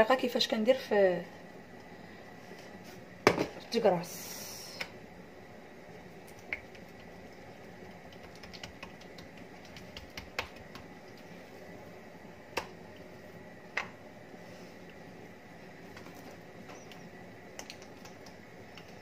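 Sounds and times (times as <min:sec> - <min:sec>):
hands patting dough: 0:06.4 - 0:11.3.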